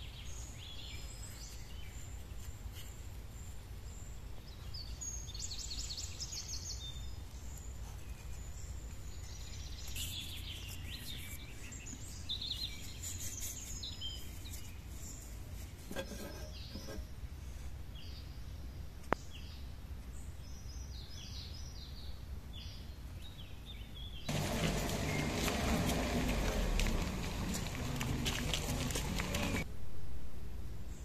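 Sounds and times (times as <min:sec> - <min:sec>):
bird calls and chirps: 0:00.0 - 0:15.4
low outdoor rumble: 0:24.3 - 0:31.0.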